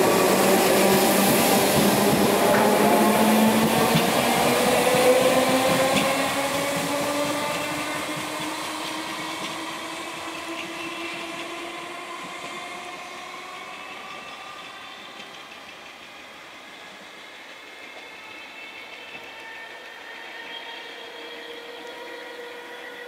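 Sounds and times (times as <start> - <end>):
electric train accelerating: 0.0 - 23.0.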